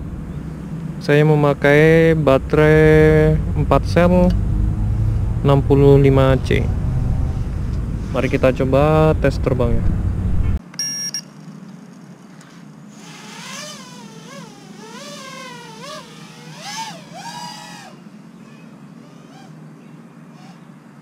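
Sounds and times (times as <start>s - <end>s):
brief beep: 10.7s - 11.3s
quadcopter motors whining: 11.4s - 20.8s.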